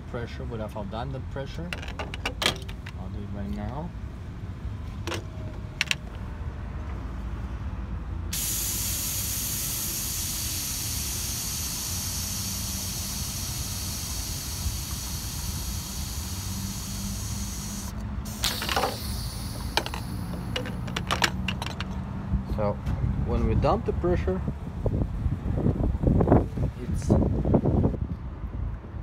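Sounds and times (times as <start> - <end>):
pressure hissing out: 8.3 - 21.7
fitting clicks: 17.0 - 22.0.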